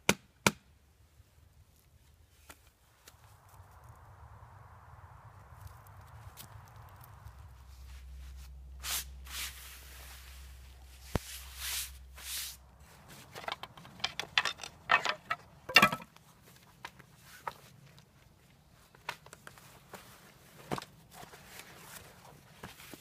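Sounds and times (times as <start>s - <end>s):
low steady hum: 0.8s - 16.2s
canvas fabric rustling: 7.6s - 13.4s
sharp clicks and wooden knocks: 13.4s - 16.1s.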